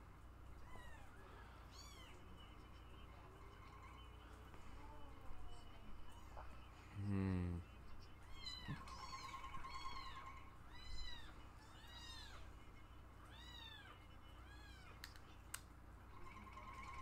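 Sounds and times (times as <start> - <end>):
cats meowing: 0.5 - 2.4, 8.2 - 15.1.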